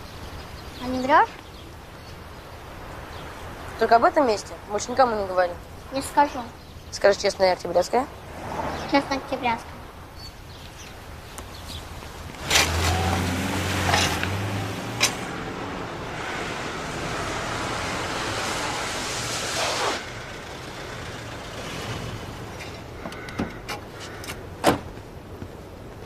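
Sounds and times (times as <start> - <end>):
vehicle engine hum: 11.6 - 26.0
rush of noise: 14.6 - 23.6.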